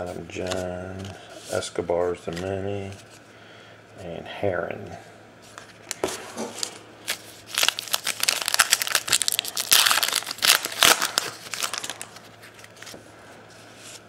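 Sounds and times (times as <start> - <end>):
wrapper crinkling and tearing: 6.6 - 12.9.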